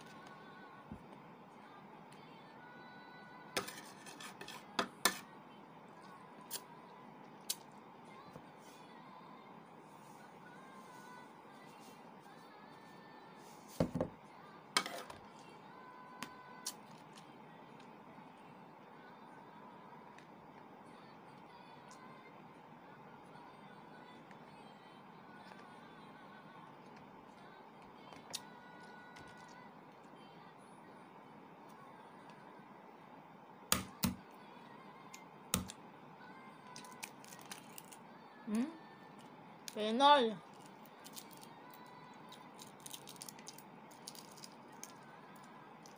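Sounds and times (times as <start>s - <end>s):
shell crackling as peeled: 36.8s - 38.0s, 40.5s - 41.5s, 42.3s - 45.0s.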